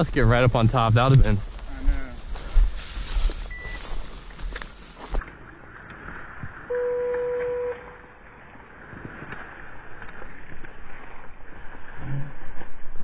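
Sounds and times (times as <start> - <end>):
footsteps through dry grass: 0.0 - 6.7, 8.1 - 11.9
buzzer tone: 6.7 - 8.1.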